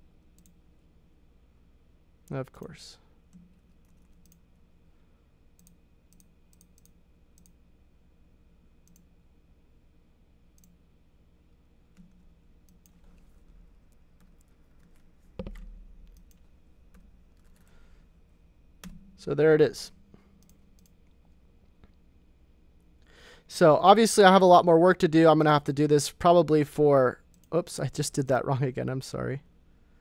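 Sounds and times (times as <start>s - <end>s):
computer mouse clicks: 0.4s - 0.6s, 3.3s - 4.5s, 5.6s - 7.6s, 8.8s - 9.1s, 10.6s - 10.8s, 11.9s - 17.8s, 20.4s - 21.2s.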